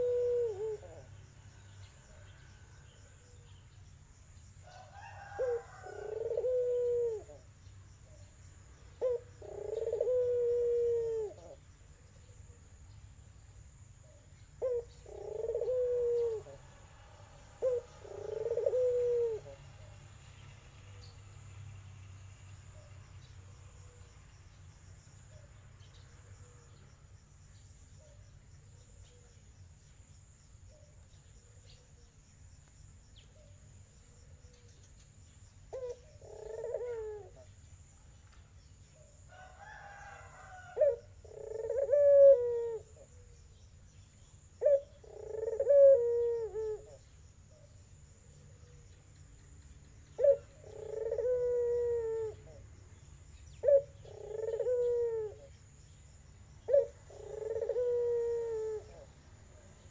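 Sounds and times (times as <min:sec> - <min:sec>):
dove cooing: 0:00.0 - 0:01.2, 0:04.7 - 0:07.5, 0:09.0 - 0:11.6, 0:14.0 - 0:16.7, 0:17.5 - 0:19.9, 0:35.7 - 0:37.6, 0:39.0 - 0:43.4, 0:44.6 - 0:48.9, 0:50.2 - 0:52.7, 0:53.6 - 0:55.5, 0:56.6 - 0:59.9.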